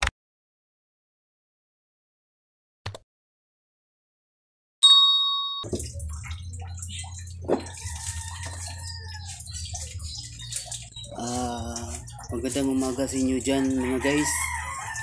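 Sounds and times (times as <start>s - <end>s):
bright bell chime: 4.8s - 5.7s.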